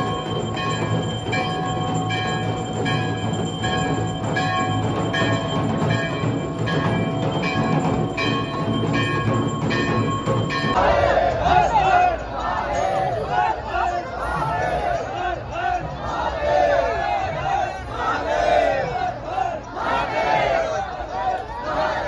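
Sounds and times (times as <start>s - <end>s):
drumming: 0.0s - 11.6s
temple bells ringing: 0.0s - 13.5s.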